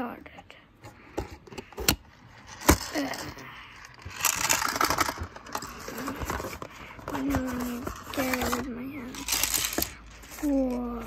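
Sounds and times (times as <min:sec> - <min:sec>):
cardboard rustling and scraping: 0:01.1 - 0:11.0.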